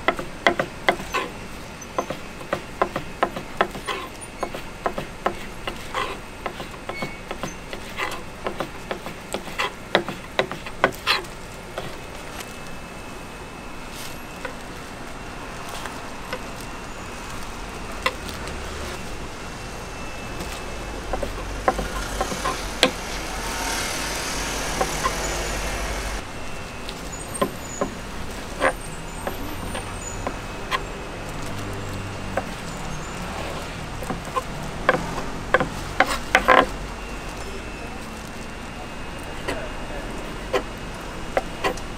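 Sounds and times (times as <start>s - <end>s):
road traffic: 0.0s - 41.9s
vehicle passing close by: 17.2s - 26.2s
sharp knocks and clatters: 20.4s - 25.4s.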